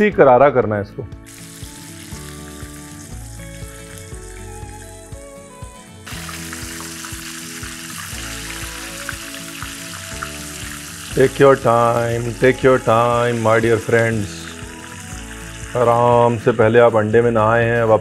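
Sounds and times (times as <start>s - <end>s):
background music: 0.0s - 18.0s
chicken deep-frying in oil: 1.3s - 4.3s, 6.1s - 16.5s.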